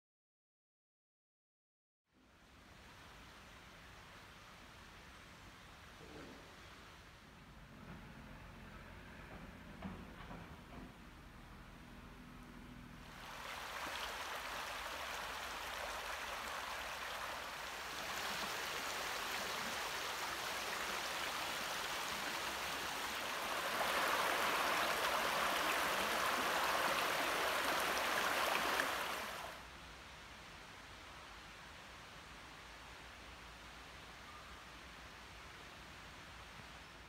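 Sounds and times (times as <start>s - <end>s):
river rushing over stones: 13.0s - 29.7s.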